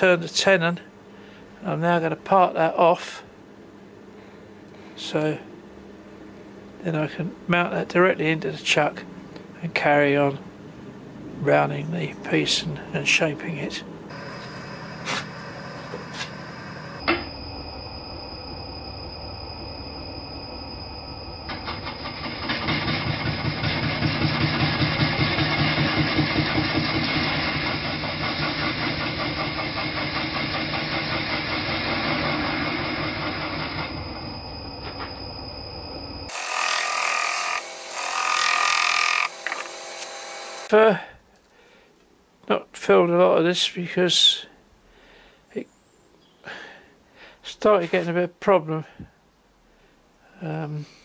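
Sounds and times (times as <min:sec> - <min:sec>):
wood lathe gouge cutting: 0:36.3 - 0:40.7.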